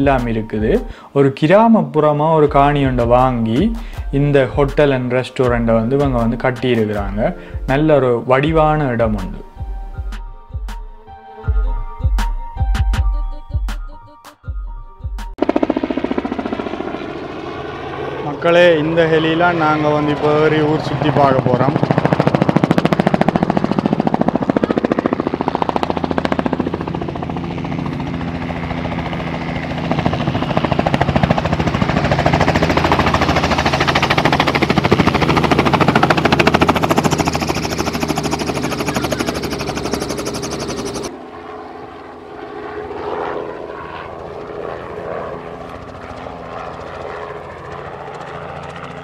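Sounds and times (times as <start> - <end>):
helicopter rotor chopping: 0.0 - 1.0, 2.4 - 9.7, 15.3 - 49.0.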